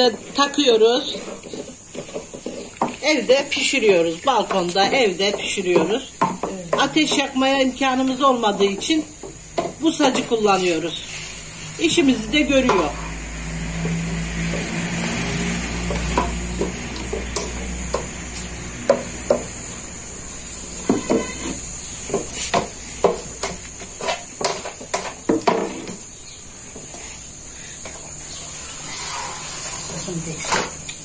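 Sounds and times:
wooden stick knocking on griddle: 0:00.0 - 0:10.5, 0:15.8 - 0:19.8, 0:20.8 - 0:26.0.

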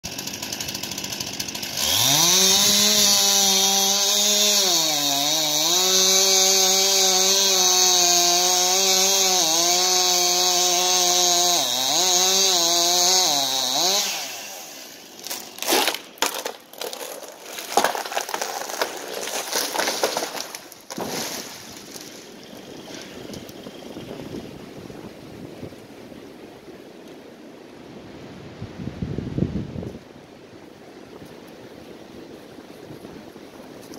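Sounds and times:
chainsaw cutting wood: 0:00.1 - 0:24.5
tree trunk cracking and crashing: 0:00.2 - 0:07.9, 0:15.2 - 0:23.7.

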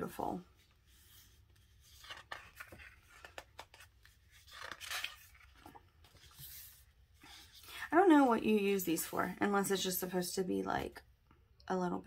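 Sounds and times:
paper page rustling: 0:00.6 - 0:07.9.

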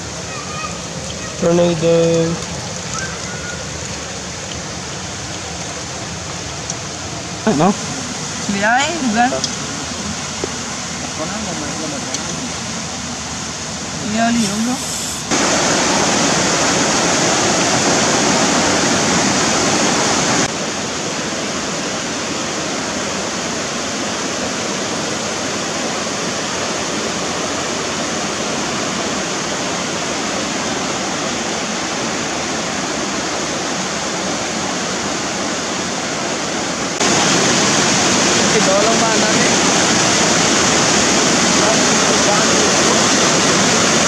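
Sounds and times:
river rushing over boulders: 0:00.0 - 0:44.0.

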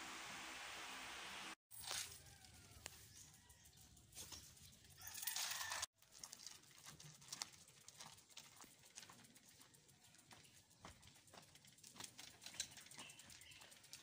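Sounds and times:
outdoor background noise: 0:00.0 - 0:14.0
faint rooster crowing: 0:01.9 - 0:04.0, 0:04.9 - 0:05.9.

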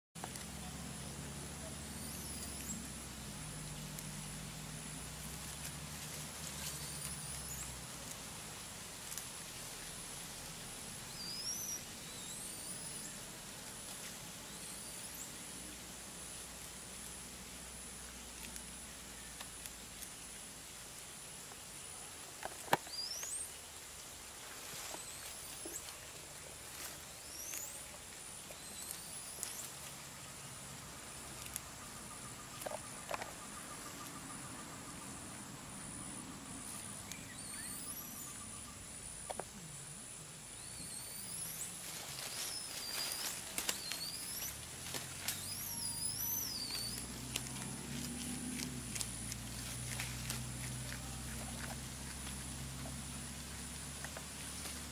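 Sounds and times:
clicks and rustles of leaves: 0:00.2 - 0:36.0, 0:40.5 - 0:54.9
steady high-pitched whine: 0:00.2 - 0:54.9
rustling and snapping of leafy stems: 0:08.9 - 0:09.5, 0:18.2 - 0:20.2, 0:28.4 - 0:30.0, 0:31.3 - 0:31.7, 0:41.8 - 0:45.6, 0:46.6 - 0:54.9
low hum: 0:24.6 - 0:54.9
rising whistles: 0:45.3 - 0:47.2.

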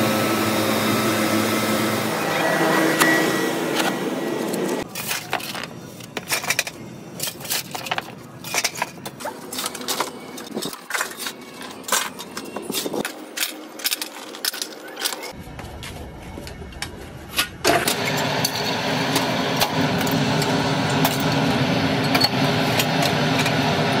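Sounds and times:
metal parts clinking: 0:04.8 - 0:15.4.

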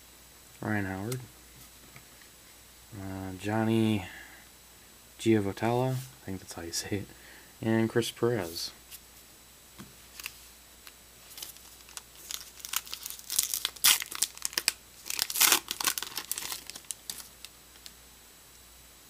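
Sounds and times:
wrapper tearing and crinkling: 0:11.3 - 0:17.5.

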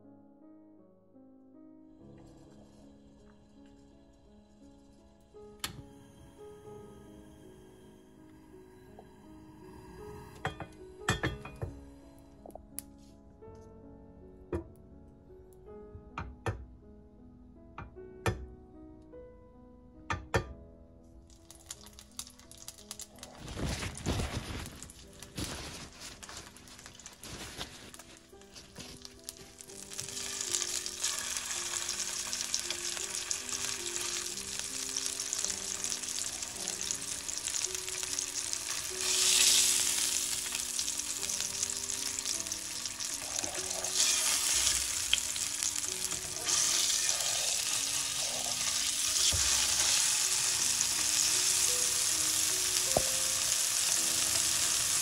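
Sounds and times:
steak sizzling in oil: 0:21.4 - 0:55.0
paper towel rustling: 0:23.2 - 0:29.5.

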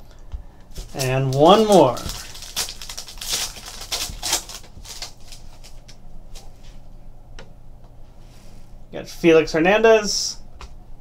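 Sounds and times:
cards clicking and rustling: 0:00.7 - 0:06.0
plastic wrapper crinkling and tearing: 0:00.7 - 0:06.0.

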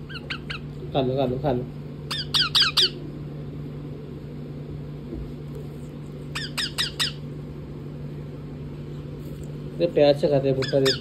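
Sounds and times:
parakeet squawking: 0:00.0 - 0:00.8, 0:02.0 - 0:03.1, 0:06.3 - 0:07.3, 0:10.4 - 0:11.0
low steady hum: 0:00.0 - 0:11.0.

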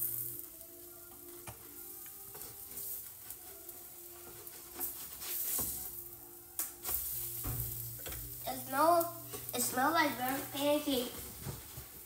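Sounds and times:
pancakes sizzling on a griddle: 0:00.0 - 0:12.0
spatula scraping and tapping pan: 0:04.3 - 0:05.9, 0:09.3 - 0:09.7.

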